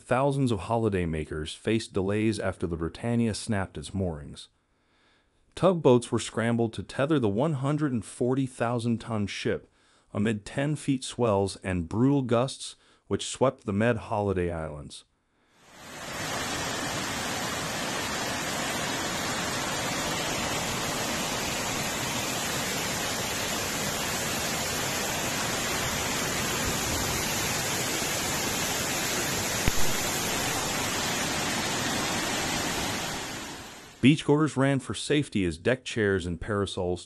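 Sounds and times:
floodwater rushing: 0:15.7 - 0:34.0.

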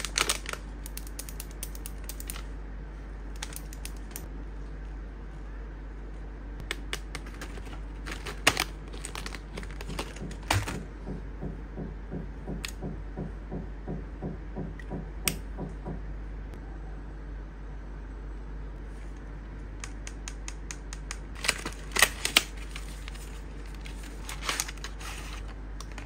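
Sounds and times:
plastic pens clicking and knocking: 0:00.3 - 0:02.4.

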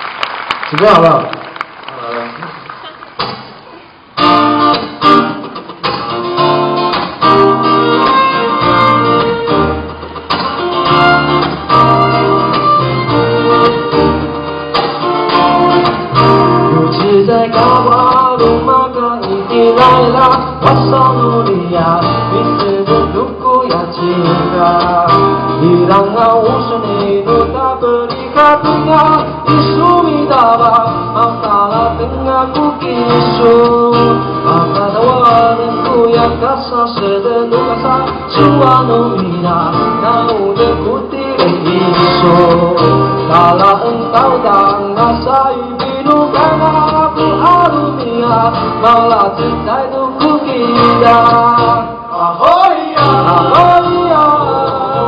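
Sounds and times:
strummed acoustic guitar: 0:03.2 - 0:55.0
man singing into a microphone: 0:15.4 - 0:55.0.

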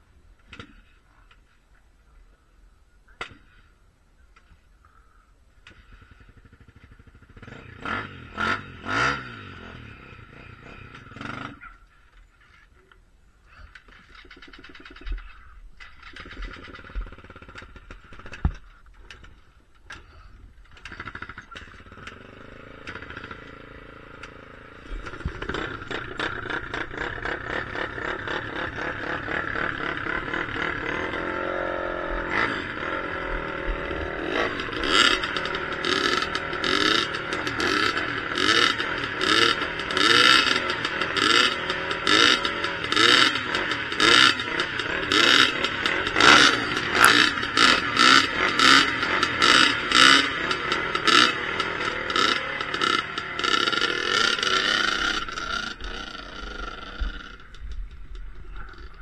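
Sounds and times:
dirt bike engine revving: 0:05.7 - 0:11.7, 0:13.8 - 0:20.1, 0:20.7 - 0:59.0
clicks and clatter: 0:13.6 - 0:22.2.

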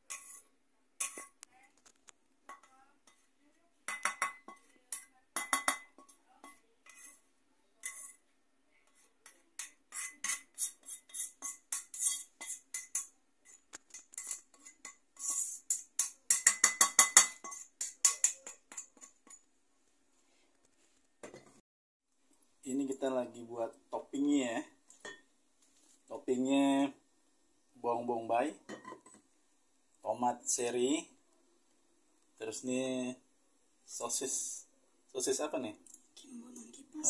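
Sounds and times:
spatula scraping a wok: 0:00.0 - 0:01.4, 0:02.5 - 0:03.4, 0:04.0 - 0:19.5.

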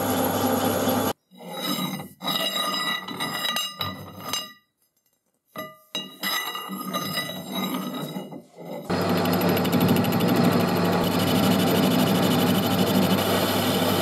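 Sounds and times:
metal rod scraping and ringing: 0:01.3 - 0:04.7, 0:05.6 - 0:08.9.

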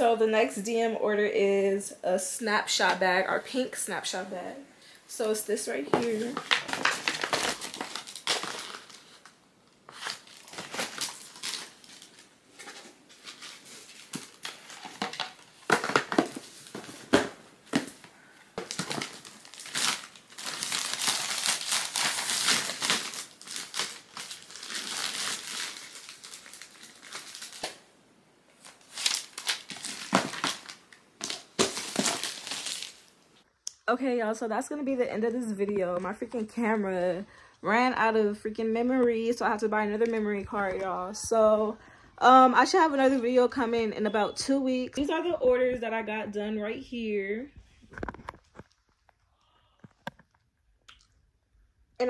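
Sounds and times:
plastic mailer bag crinkling: 0:05.8 - 0:27.8, 0:28.6 - 0:33.2.

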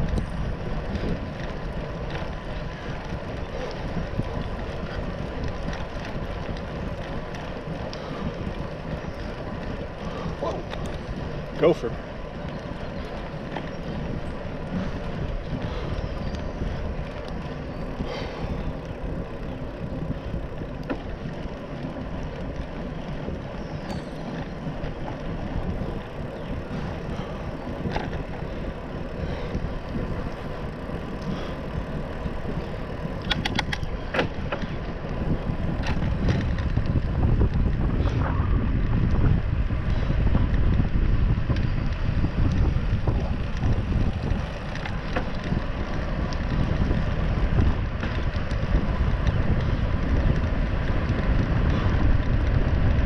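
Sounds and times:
bicycle tyre noise: 0:00.0 - 0:53.0
heavy low rumble: 0:00.0 - 0:53.0
wind on microphone: 0:00.0 - 0:53.0
rattling clicks: 0:33.2 - 0:35.2.

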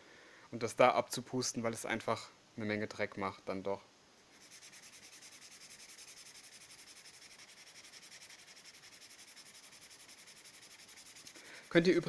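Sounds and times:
nail file scratching paper edges: 0:04.4 - 0:11.9.

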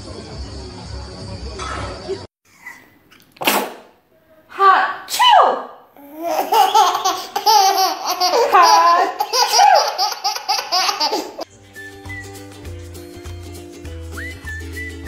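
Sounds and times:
baby laughing: 0:02.5 - 0:03.3, 0:06.0 - 0:11.5
background music: 0:11.5 - 0:15.0.

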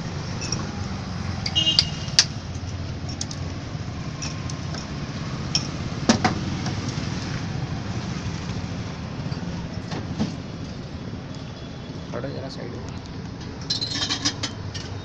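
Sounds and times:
low rumble of street traffic: 0:00.0 - 0:15.0
market background: 0:04.0 - 0:15.0
glass bottles clinking: 0:13.6 - 0:15.0.

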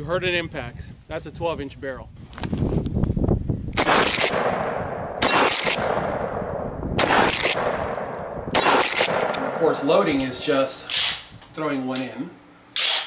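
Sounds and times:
gunshot echo: 0:03.8 - 0:10.2
shotgun shots: 0:03.8 - 0:10.2, 0:12.8 - 0:13.0.

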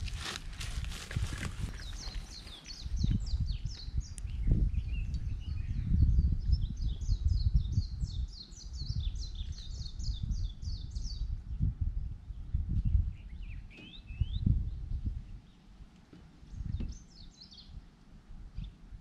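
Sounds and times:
wind rumbling on microphone: 0:00.0 - 0:19.0
small songbird singing: 0:01.6 - 0:11.7, 0:12.3 - 0:15.7, 0:16.4 - 0:17.8.

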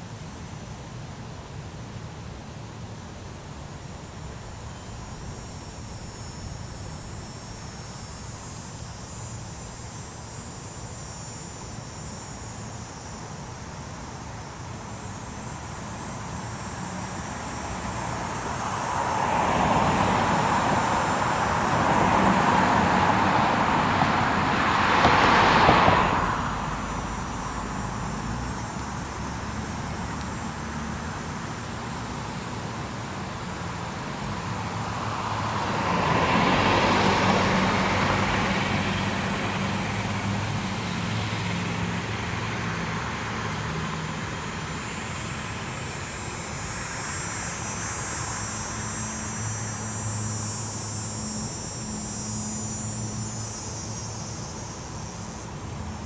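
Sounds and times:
low engine hum: 0:02.6 - 0:56.0
vehicle passing: 0:17.0 - 0:32.8, 0:33.6 - 0:45.7.

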